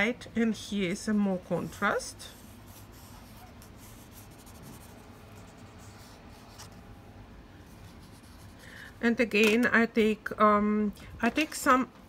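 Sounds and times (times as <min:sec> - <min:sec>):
crayon scribbling on paper: 0:01.5 - 0:06.7, 0:07.7 - 0:08.6.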